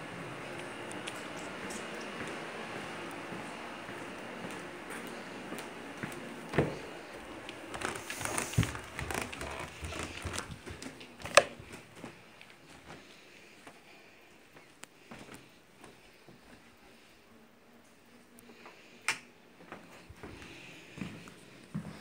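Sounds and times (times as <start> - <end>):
rustling against microphone: 6.7 - 12.2.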